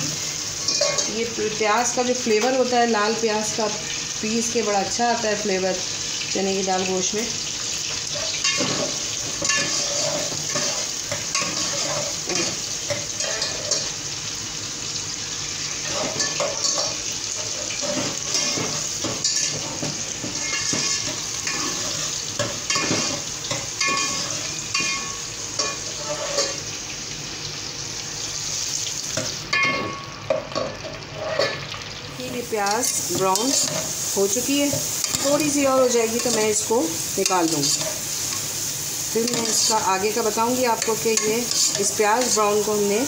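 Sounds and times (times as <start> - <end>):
onion sizzling in hot oil: 0.0 - 43.0
ladle scraping a steel pot: 8.1 - 12.5, 25.6 - 26.6, 31.1 - 31.6.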